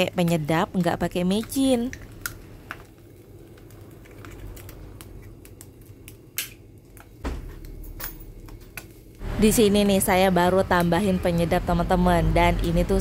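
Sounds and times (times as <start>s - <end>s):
egg frying in a pan: 0.0s - 7.8s
oil spitting crackles and pops: 1.4s - 7.7s.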